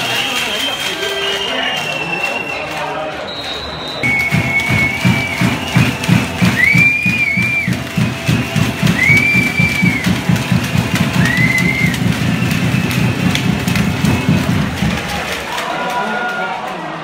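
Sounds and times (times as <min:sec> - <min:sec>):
rhythmic drumming: 0:04.0 - 0:15.9.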